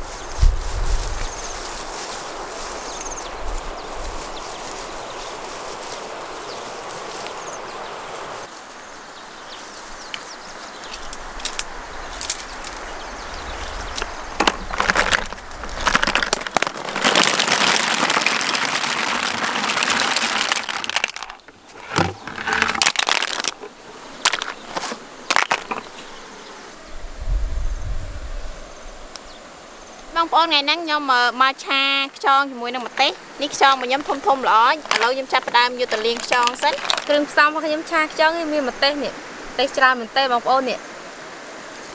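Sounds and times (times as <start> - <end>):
footsteps through tall grass: 0.0 - 18.3
snail shells clattering: 14.4 - 26.0, 32.8 - 37.4.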